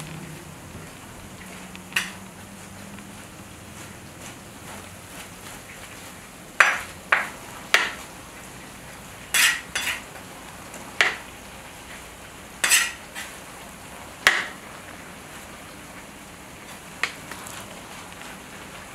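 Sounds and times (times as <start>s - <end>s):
metal skimmer scraping metal pot: 9.3s - 10.1s, 12.6s - 13.4s.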